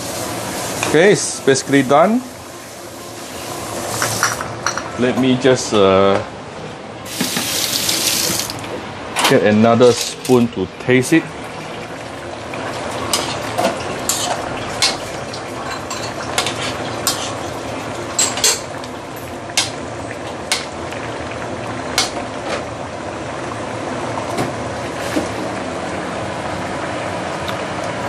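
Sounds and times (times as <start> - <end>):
simmering sauce hissing: 0.0 - 4.3.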